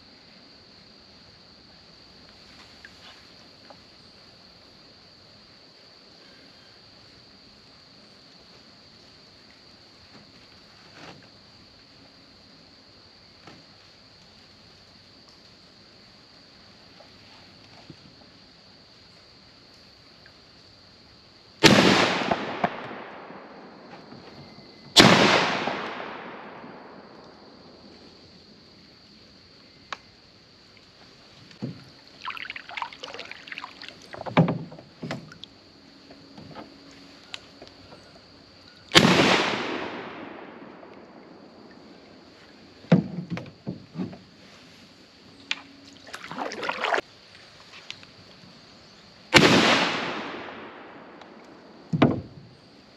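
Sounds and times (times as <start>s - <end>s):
shotgun shots echoing: 21.6s - 23.8s, 25.0s - 27.2s, 38.9s - 41.1s, 49.4s - 51.3s.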